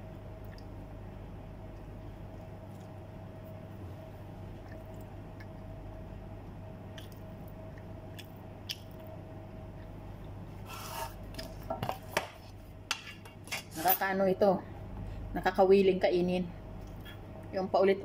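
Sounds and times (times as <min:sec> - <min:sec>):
faint chewing of food: 0:00.0 - 0:00.9, 0:01.5 - 0:05.8
steady low hum: 0:00.0 - 0:18.0.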